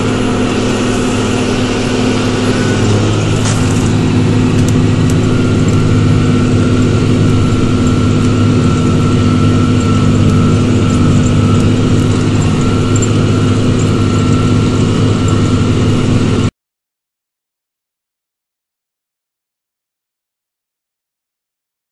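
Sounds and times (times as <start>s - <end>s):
tractor diesel engine under load: 0.0s - 16.5s.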